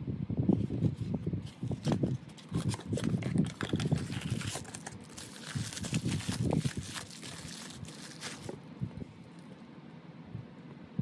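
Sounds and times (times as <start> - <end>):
bubble wrap crinkling: 1.4 - 8.6.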